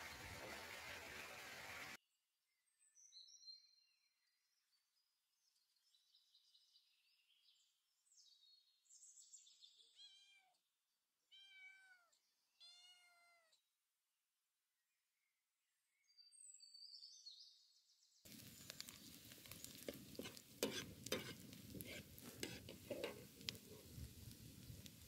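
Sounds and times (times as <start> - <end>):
faint bird chirps: 2.5 - 10.6
cat meowing: 10.0 - 10.6, 11.3 - 13.6
steady hiss: 18.3 - 25.0.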